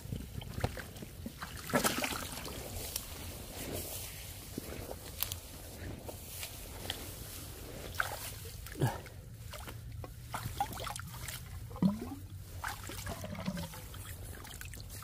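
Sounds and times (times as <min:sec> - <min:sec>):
shallow water dribbling and splashing: 0:00.0 - 0:04.0, 0:06.2 - 0:15.0
gurgling splashes: 0:01.3 - 0:02.8, 0:07.9 - 0:15.0.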